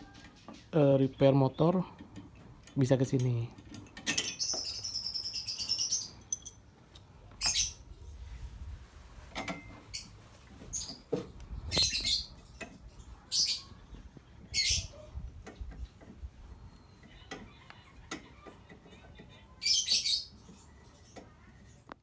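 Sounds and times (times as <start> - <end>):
high chirping sound: 4.2 - 6.6.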